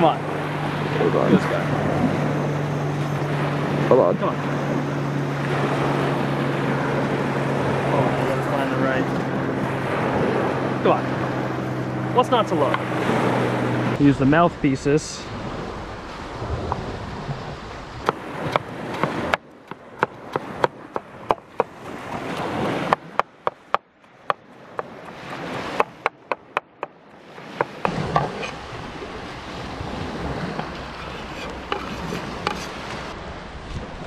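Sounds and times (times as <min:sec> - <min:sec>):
surf: 0:00.0 - 0:34.0
wind: 0:00.0 - 0:34.0
knife chopping on wooden board: 0:18.1 - 0:21.8, 0:22.9 - 0:26.9, 0:30.6 - 0:32.8.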